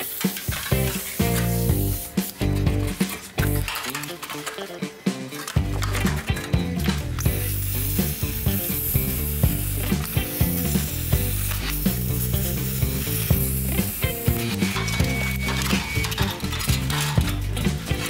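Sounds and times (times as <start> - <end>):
cutting torch hissing through metal: 0.0 - 3.2, 7.2 - 16.5
background music: 0.0 - 18.0.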